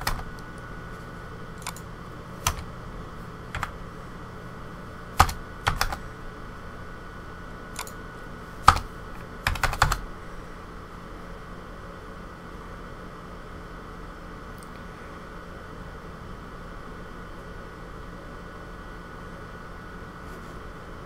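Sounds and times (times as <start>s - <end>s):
keyboard keystrokes: 0.0s - 0.4s, 1.6s - 2.7s, 3.5s - 3.8s, 5.2s - 6.0s, 7.8s - 8.0s, 8.6s - 10.0s
faint steady hum: 0.0s - 21.0s.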